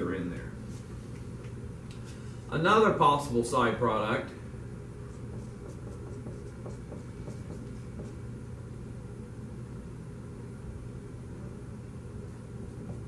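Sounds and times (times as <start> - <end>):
low room hum: 0.0 - 13.0
marker scratching on whiteboard: 5.0 - 8.3, 12.5 - 13.0.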